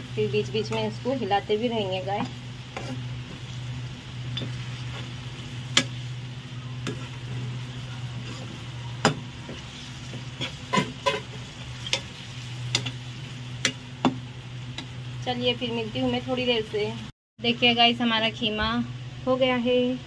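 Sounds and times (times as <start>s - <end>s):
minced meat sizzling: 0.0s - 17.1s
spatula scraping frying pan: 2.6s - 6.2s, 6.8s - 13.1s.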